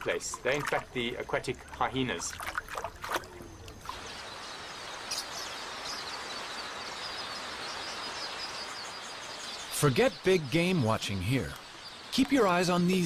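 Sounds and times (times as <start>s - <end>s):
flock of birds chirping: 0.0s - 13.0s.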